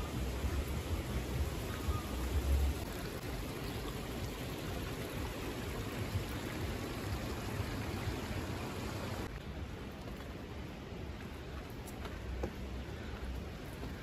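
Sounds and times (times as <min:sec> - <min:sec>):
river rushing: 0:00.0 - 0:11.8.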